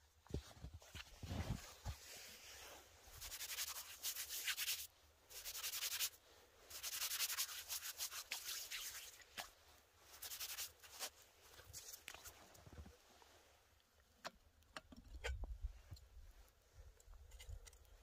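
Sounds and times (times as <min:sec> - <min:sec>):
hands rubbing snow: 0:00.4 - 0:13.5.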